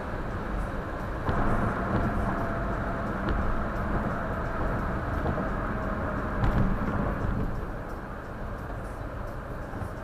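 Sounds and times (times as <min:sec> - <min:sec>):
low engine hum: 0:00.0 - 0:10.0
tyre and road noise: 0:00.0 - 0:10.0.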